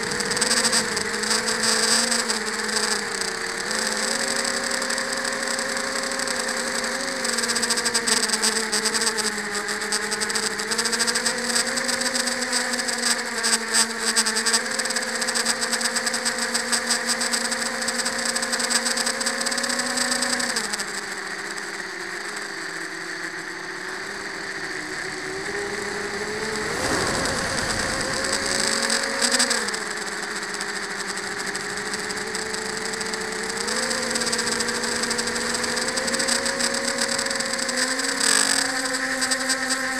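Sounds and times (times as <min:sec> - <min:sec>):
drone propellers whining: 0:00.0 - 0:08.5, 0:20.8 - 0:39.7
brief rush of noise: 0:26.0 - 0:29.8.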